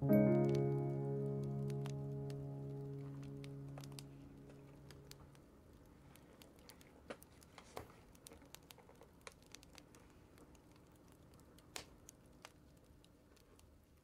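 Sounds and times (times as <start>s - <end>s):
paper and stickers rustling: 6.6s - 9.1s.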